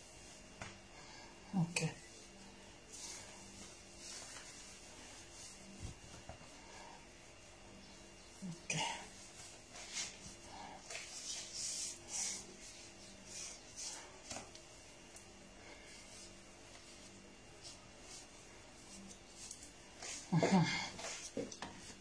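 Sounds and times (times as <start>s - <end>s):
cloth rustling: 2.2s - 7.9s.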